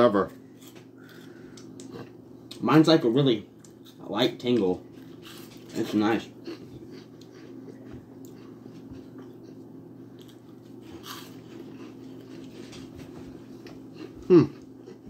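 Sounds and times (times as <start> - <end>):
steady low hum: 0.0 - 15.0
person crunching a snack: 9.2 - 12.6.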